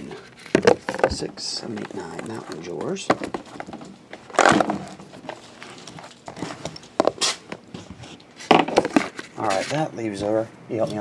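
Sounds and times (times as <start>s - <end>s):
box knocks and rustles: 0.5s - 5.4s, 8.5s - 9.2s
plastic-wrapped cardboard scraping: 4.2s - 9.9s.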